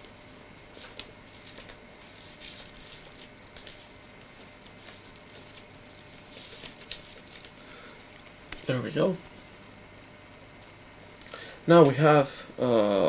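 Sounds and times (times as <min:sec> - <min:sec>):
tape hiss: 0:00.0 - 0:13.0
record sleeve rustling: 0:00.6 - 0:08.8.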